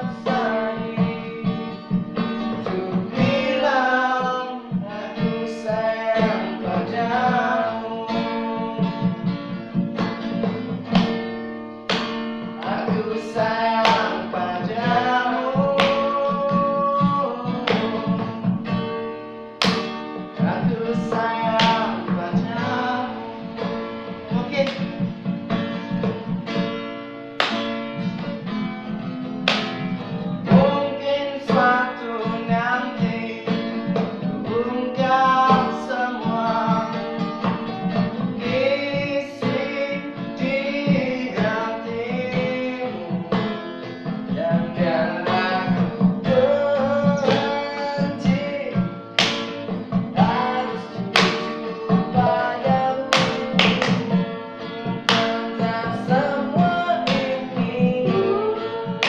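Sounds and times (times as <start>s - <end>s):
man singing: 0.0s - 11.1s, 12.6s - 18.7s, 20.3s - 25.0s, 30.4s - 59.0s
acoustic guitar strumming: 0.0s - 59.0s
sharp percussive hits: 8.8s - 18.9s, 19.6s - 20.1s, 27.4s - 28.4s, 29.4s - 30.7s, 44.2s - 55.6s.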